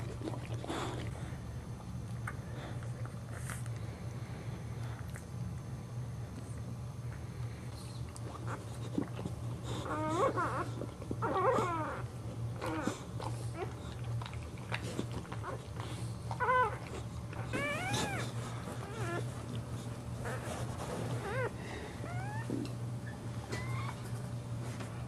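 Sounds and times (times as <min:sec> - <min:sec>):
steady low hum: 0:00.0 - 0:25.0
puppies squealing: 0:17.4 - 0:19.3, 0:21.2 - 0:24.1.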